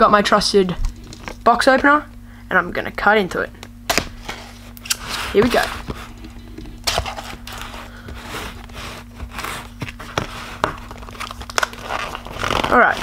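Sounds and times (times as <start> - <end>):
plastic crinkling and tearing: 8.6 - 13.0.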